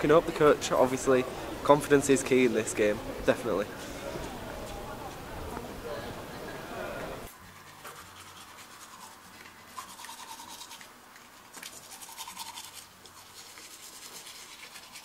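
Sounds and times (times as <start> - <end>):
toothbrush scrubbing teeth: 7.4 - 15.0.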